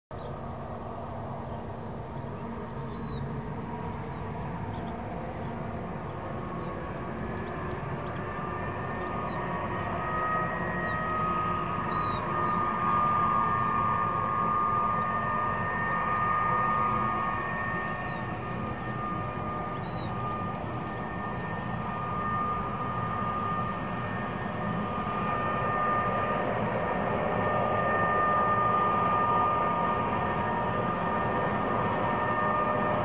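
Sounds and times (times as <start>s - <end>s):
distant diesel locomotives rumbling: 0.2s - 33.0s
bird chirps: 2.9s - 3.2s, 4.0s - 5.0s, 6.1s - 6.8s, 9.0s - 9.5s, 10.7s - 11.0s, 11.9s - 12.6s, 17.9s - 18.4s, 19.7s - 21.4s.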